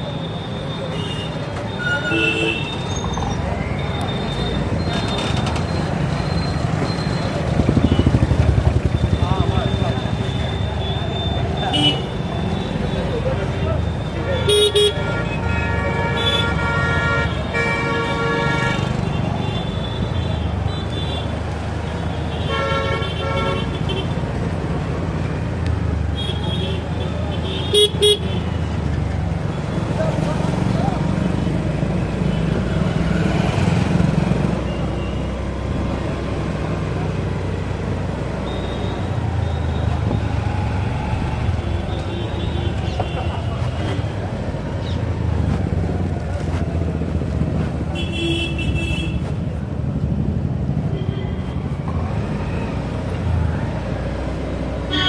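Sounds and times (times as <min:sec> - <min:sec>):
traffic rumble: 0:00.0 - 0:55.0
vehicle horns honking: 0:00.9 - 0:03.0, 0:14.3 - 0:21.3, 0:47.9 - 0:49.2
motorcycle engine running: 0:07.4 - 0:10.2.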